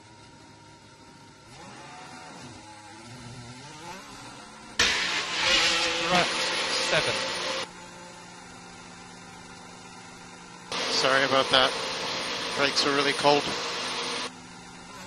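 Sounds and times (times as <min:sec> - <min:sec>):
race car engine: 0:01.4 - 0:08.4, 0:10.4 - 0:15.0
radio hiss with voice: 0:04.8 - 0:07.6, 0:10.7 - 0:14.3.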